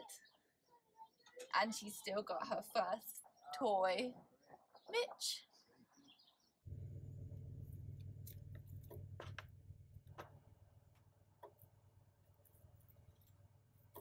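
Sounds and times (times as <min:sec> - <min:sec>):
low room hum: 0:06.7 - 0:14.0.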